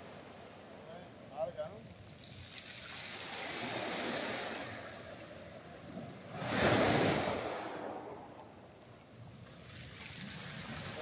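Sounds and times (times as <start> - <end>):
sea waves breaking on beach: 2.1 - 8.6, 9.4 - 11.0.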